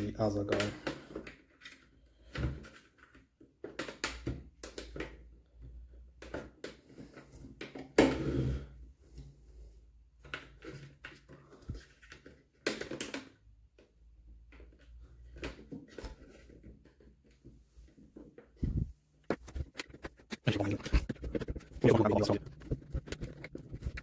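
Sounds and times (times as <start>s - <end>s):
plastic housing clicking and creaking: 0.4s - 8.0s, 10.2s - 17.5s, 19.3s - 24.0s.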